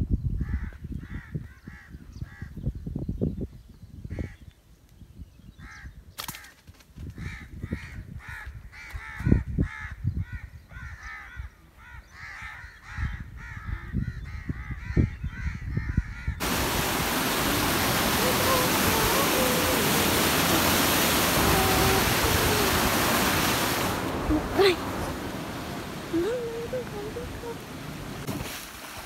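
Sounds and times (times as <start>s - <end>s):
wind on microphone: 0.0s - 6.2s, 6.9s - 29.0s
birds calling: 9.8s - 28.3s
water churning past concrete: 16.4s - 29.0s.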